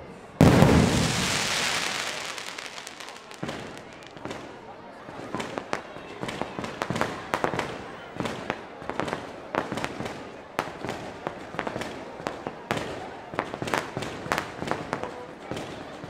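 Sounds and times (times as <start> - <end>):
fireworks bangs and pops: 0.4 - 16.0.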